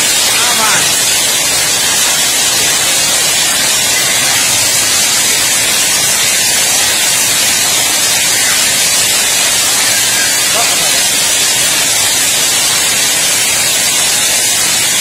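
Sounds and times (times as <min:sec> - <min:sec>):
hailstones pelting pavement: 0:00.0 - 0:15.0.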